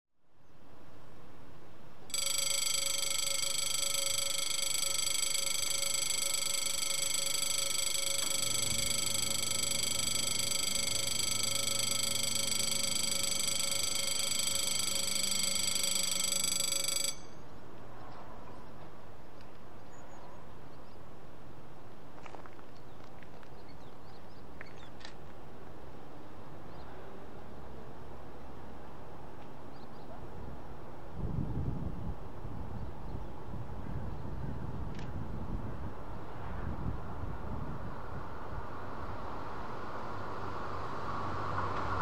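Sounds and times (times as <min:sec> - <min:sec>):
level crossing bell ringing: 0:02.1 - 0:17.4.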